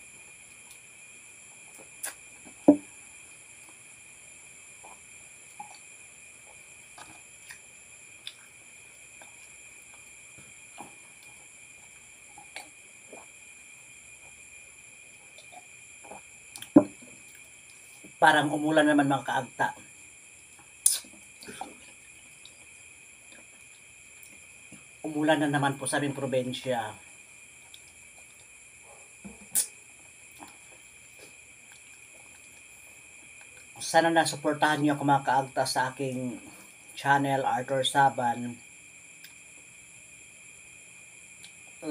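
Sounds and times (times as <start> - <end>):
crickets chirring: 0.0 - 41.9
steady high-pitched whine: 0.0 - 41.9
person sipping and swallowing: 15.3 - 18.2, 20.8 - 24.9, 27.7 - 33.8.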